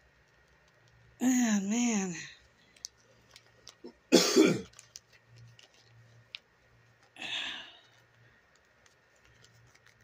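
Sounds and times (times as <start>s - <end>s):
doll and boot rubbing and clicking: 4.7s - 7.2s.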